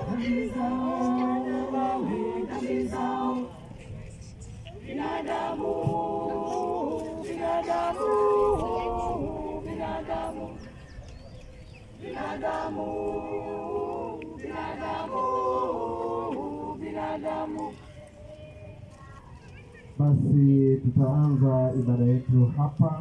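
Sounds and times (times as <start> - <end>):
choir singing a hymn: 0.0 - 11.1, 11.8 - 18.0.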